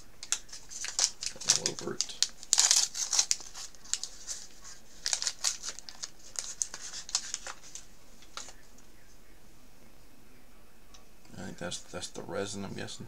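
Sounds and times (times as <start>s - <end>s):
plastic packaging crinkling: 0.2s - 8.8s.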